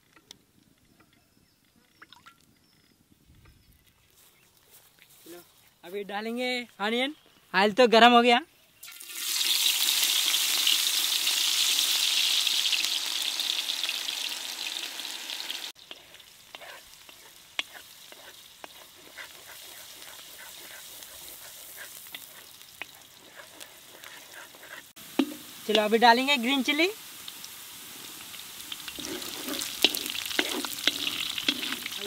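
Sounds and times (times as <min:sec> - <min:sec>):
onions sizzling in hot oil: 0:08.8 - 0:32.0
wooden spatula scraping a pan: 0:15.8 - 0:25.9, 0:28.8 - 0:32.0.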